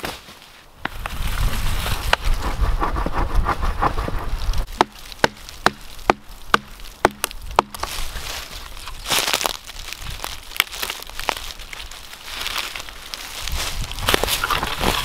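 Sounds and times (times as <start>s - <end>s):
rustling and scraping in brush: 0.0s - 4.7s, 7.8s - 15.0s
axe chopping wood: 4.6s - 8.0s.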